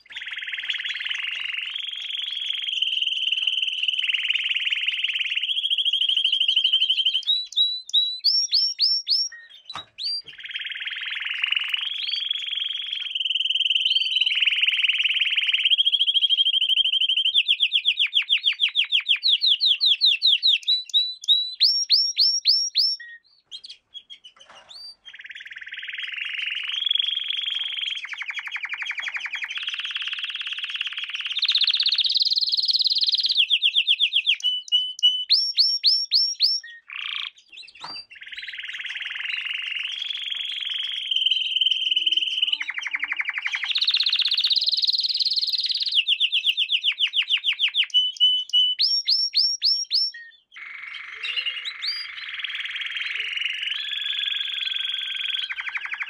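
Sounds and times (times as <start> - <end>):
canary singing trills: 0.0 - 56.0.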